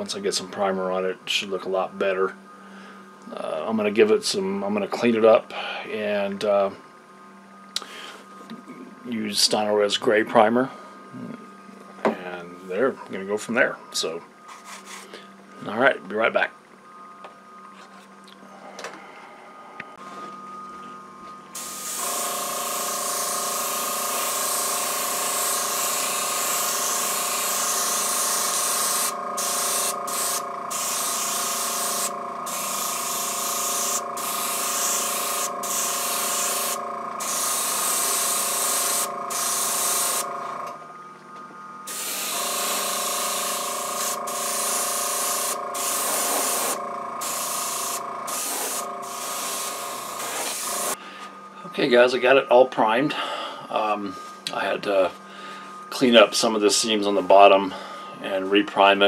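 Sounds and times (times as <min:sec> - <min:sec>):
air compressor humming: 0:16.9 - 0:58.5
airbrush spraying hiss: 0:21.6 - 0:40.3, 0:41.9 - 0:51.0.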